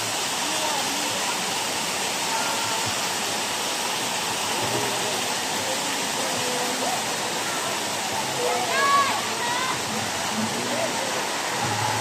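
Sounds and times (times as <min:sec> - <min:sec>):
waterfall rushing: 0:00.0 - 0:12.0
faint voices: 0:04.4 - 0:12.0.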